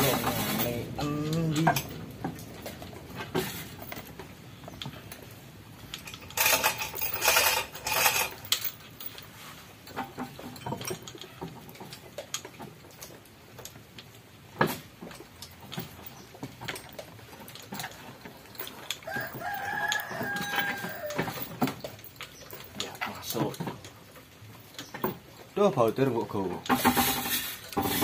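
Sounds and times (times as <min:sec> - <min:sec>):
metal clinks and rattles: 0:00.0 - 0:28.0
rooster crowing: 0:19.0 - 0:21.4.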